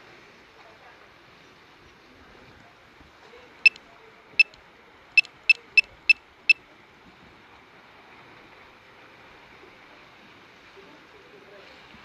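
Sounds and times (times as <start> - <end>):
sharp high-pitched clicks: 5.2 - 6.2.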